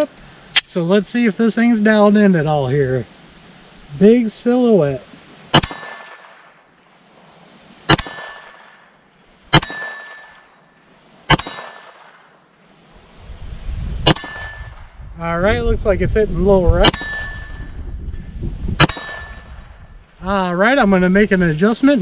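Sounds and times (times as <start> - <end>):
steel target ringing clang: 5.5 - 6.4, 7.9 - 8.9, 9.5 - 12.4, 14.0 - 14.9, 16.8 - 17.8, 18.8 - 19.8
pistol shots: 5.5 - 6.6, 7.9 - 8.8, 9.5 - 10.5, 11.3 - 12.3, 14.0 - 14.5, 16.8 - 17.2, 18.8 - 19.3.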